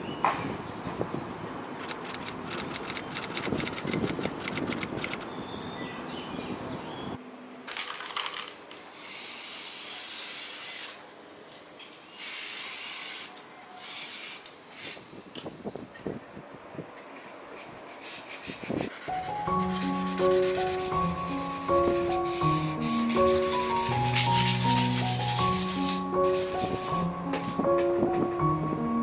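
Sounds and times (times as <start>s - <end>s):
outdoor background noise: 0.0s - 19.6s
sharp clicks: 1.8s - 5.2s
spray paint can hissing: 8.9s - 11.0s, 12.2s - 15.0s, 22.3s - 27.0s.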